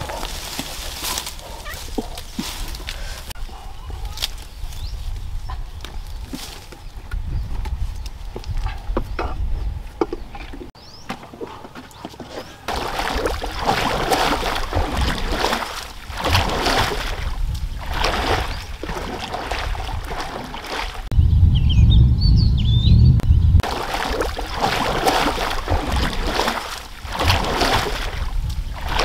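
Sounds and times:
paddle splashing water: 10.0s - 21.1s, 23.6s - 29.0s
loud low rumble: 21.1s - 23.6s.

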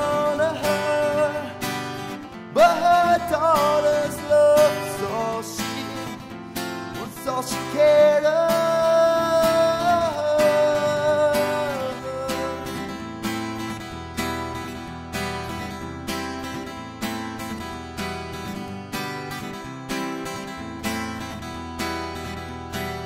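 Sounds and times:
man singing country song: 0.0s - 15.7s
acoustic guitar strumming: 0.0s - 23.0s.

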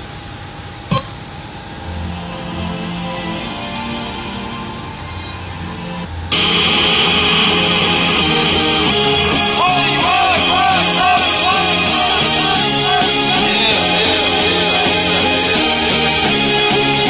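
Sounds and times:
rock song through speakers: 6.3s - 17.0s.

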